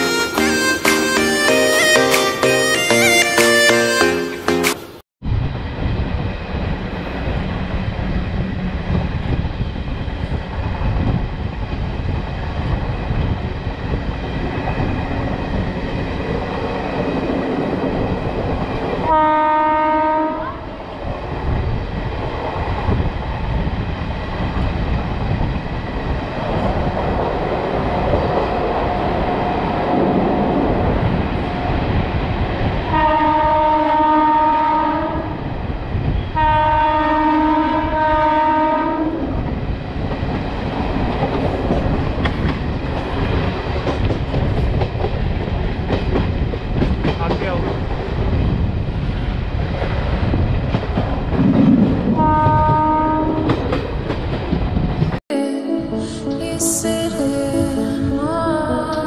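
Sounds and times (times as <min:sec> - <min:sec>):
train running rumble: 0:05.2 - 0:55.2
train horn: 0:19.0 - 0:20.7, 0:32.9 - 0:35.4, 0:36.2 - 0:39.3, 0:52.2 - 0:53.6.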